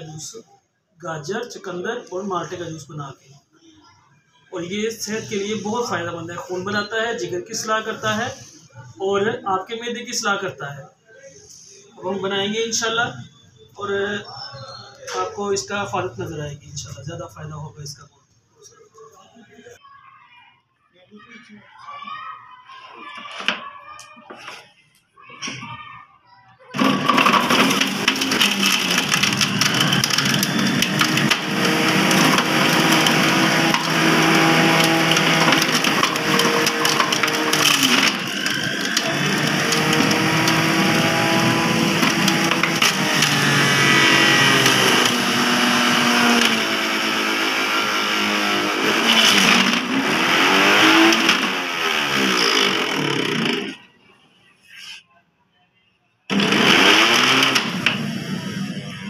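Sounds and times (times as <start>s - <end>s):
electric juicer motor grinding: 26.8s - 53.9s, 56.3s - 59.0s.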